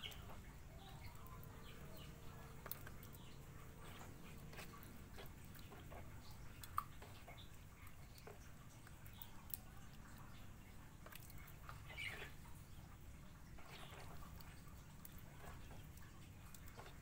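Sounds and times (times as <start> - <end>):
faint bird chirps: 11.7 - 12.9.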